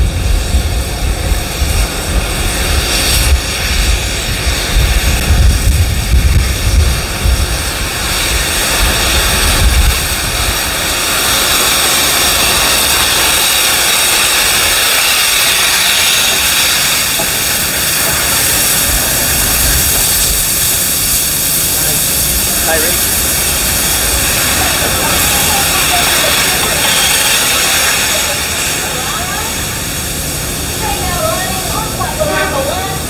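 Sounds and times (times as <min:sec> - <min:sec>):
steam locomotive hissing: 0:00.0 - 0:33.0.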